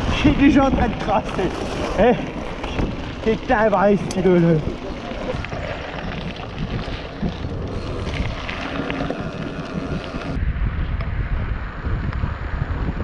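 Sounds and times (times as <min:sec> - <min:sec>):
tyres rolling over gravel: 0:00.0 - 0:10.4
wind rushing over microphone: 0:00.0 - 0:13.0.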